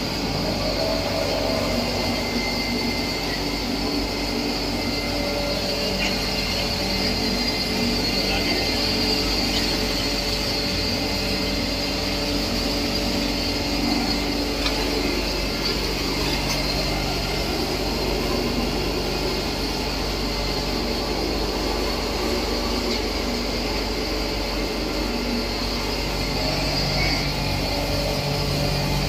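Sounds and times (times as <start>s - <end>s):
pulverizer machine drone and hiss: 0.0s - 29.0s.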